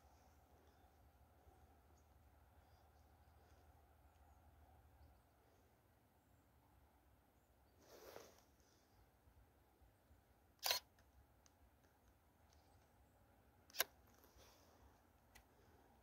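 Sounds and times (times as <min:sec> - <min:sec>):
camera handling clicks: 0:13.7 - 0:14.0.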